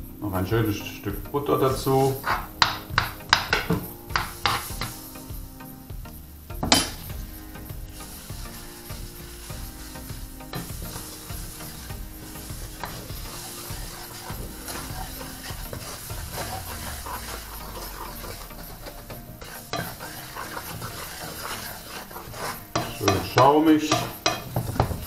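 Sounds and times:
roux sizzling in frying pan: 0:00.0 - 0:25.0
wooden spoon scraping pan: 0:00.2 - 0:25.0.

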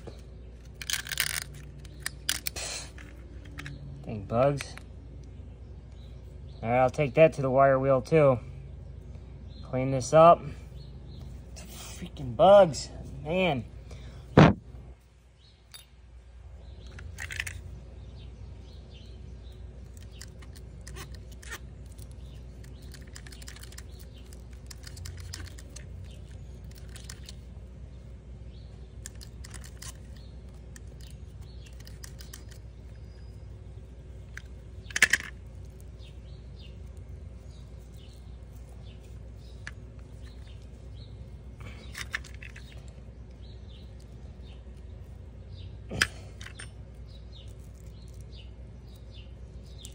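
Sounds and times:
steady low hum: 0:00.0 - 0:49.9.

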